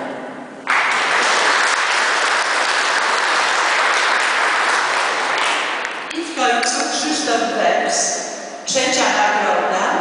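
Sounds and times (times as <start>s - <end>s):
audience applauding: 0.6s - 6.1s.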